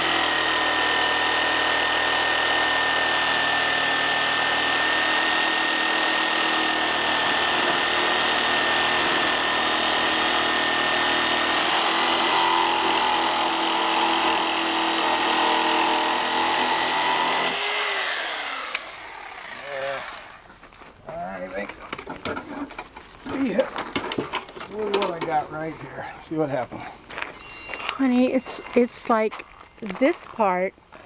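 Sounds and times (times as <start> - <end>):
electric saw cutting wood: 0.0 - 20.5
saw motor spinning down: 0.0 - 20.5.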